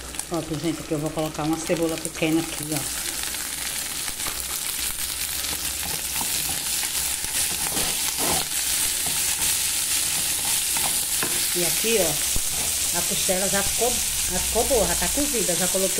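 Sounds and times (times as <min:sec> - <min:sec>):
onion and sausage sizzling: 0:00.0 - 0:15.9
wooden spoon stirring: 0:05.4 - 0:13.1.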